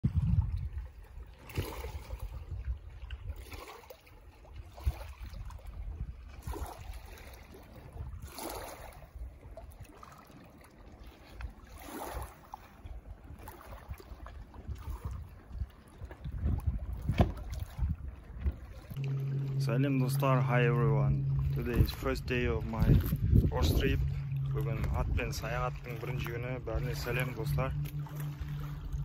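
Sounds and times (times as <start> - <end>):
wind rumble on microphone: 0.0 - 3.7, 4.4 - 10.0, 11.2 - 29.0
waves lapping on stony shore: 0.1 - 29.0.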